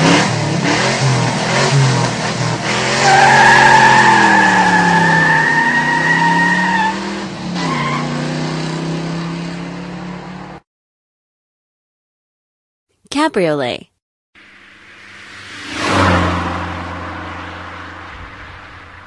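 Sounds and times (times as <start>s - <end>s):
racing car engine: 0.0s - 10.6s, 14.4s - 19.0s
tyre squeal: 3.0s - 7.0s, 7.6s - 8.1s.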